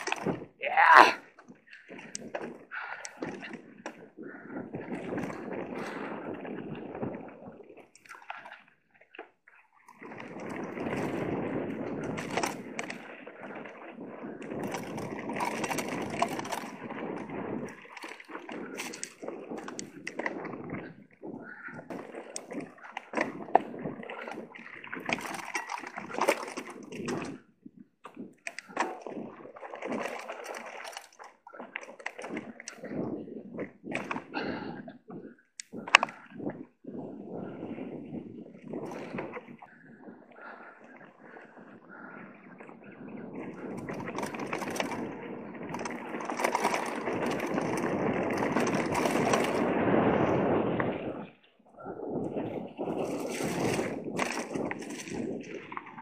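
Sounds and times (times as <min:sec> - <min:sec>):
bike rattling: 0:00.0 - 0:08.6, 0:09.2 - 0:27.5, 0:28.2 - 0:34.7, 0:37.4 - 0:42.1, 0:42.8 - 0:51.2, 0:52.3 - 0:56.0
bike knocking and rattling: 0:10.0 - 0:13.7, 0:14.4 - 0:27.4, 0:43.4 - 0:51.0
bike tyres crunching on dirt: 0:10.0 - 0:21.0, 0:43.1 - 0:51.2, 0:52.4 - 0:56.0.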